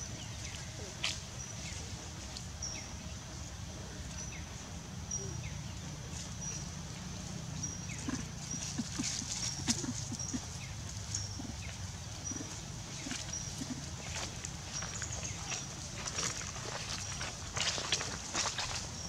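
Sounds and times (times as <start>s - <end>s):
low steady rumble: 0.0s - 19.0s
rustling in dry leaves: 5.7s - 19.0s.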